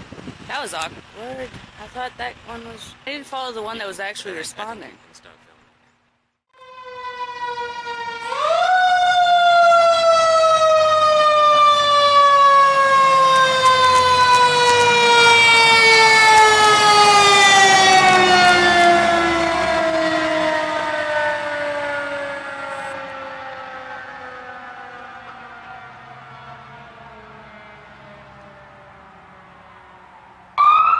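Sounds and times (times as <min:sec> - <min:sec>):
fire engine siren wailing: 0:06.6 - 0:30.9.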